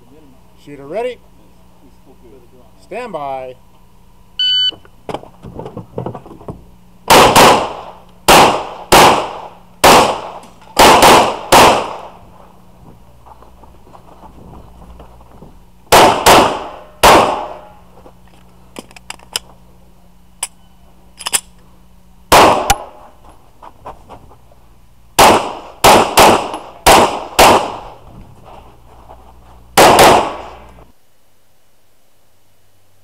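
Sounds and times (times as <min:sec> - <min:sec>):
pistol shots at close range: 0:07.1 - 0:12.2, 0:15.9 - 0:17.7, 0:22.3 - 0:23.0, 0:25.2 - 0:27.9, 0:29.8 - 0:30.6.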